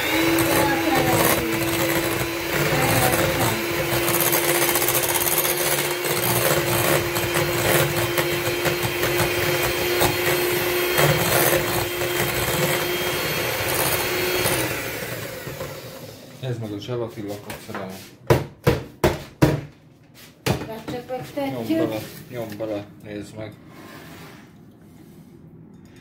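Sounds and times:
electric mixer whining: 0.0s - 16.4s.

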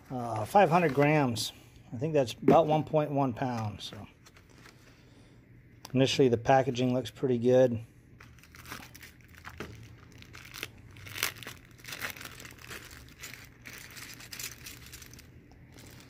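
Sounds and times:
plastic bag crinkling: 8.2s - 16.0s.

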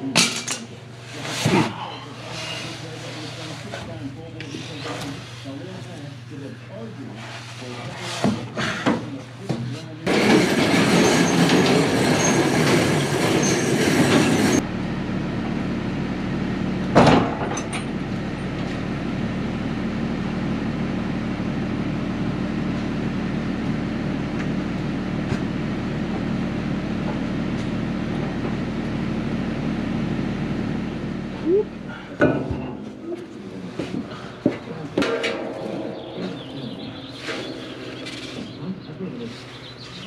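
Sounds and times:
farm machinery humming: 0.0s - 40.0s
sharp metallic clank: 32.2s - 40.0s.

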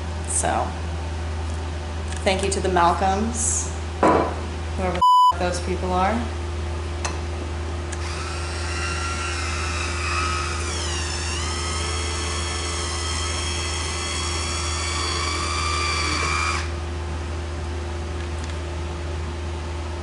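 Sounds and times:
electric wine opener whirring: 8.0s - 16.8s.

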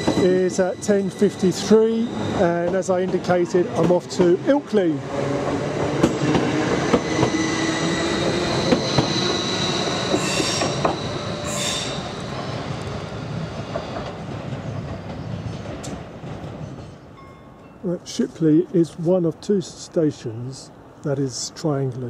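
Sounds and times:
train wheel squeals: 0.0s - 3.6s, 6.0s - 16.0s
train wheels clicking: 0.0s - 17.0s
electric train whine: 0.0s - 17.7s.

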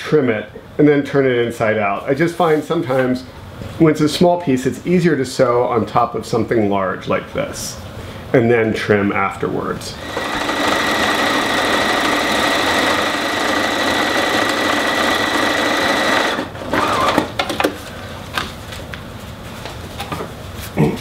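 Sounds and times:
sewing machine stitching: 10.0s - 17.4s.

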